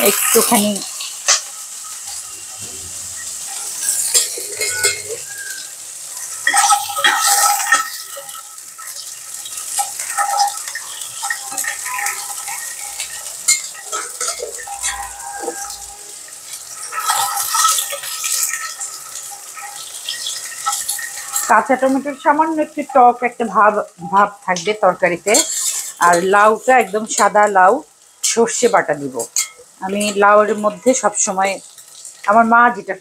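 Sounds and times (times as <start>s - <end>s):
metal spatula scraping pot: 0.0s - 23.1s, 24.0s - 27.5s, 28.2s - 32.3s
onions sizzling in oil: 0.0s - 33.0s
spatula clinking on rim: 3.5s - 5.6s, 6.2s - 21.5s, 25.3s - 27.3s, 28.2s - 30.6s.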